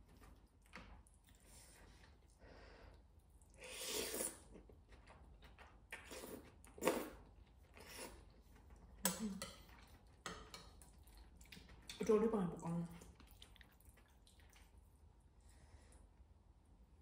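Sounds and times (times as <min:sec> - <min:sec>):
person chewing: 0:03.4 - 0:12.0, 0:13.0 - 0:14.9
person slurping noodles: 0:03.6 - 0:04.6.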